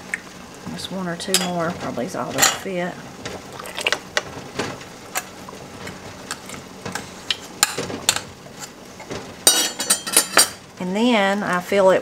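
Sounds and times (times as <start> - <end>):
metal spoons clinking and scraping: 9.5 - 10.6.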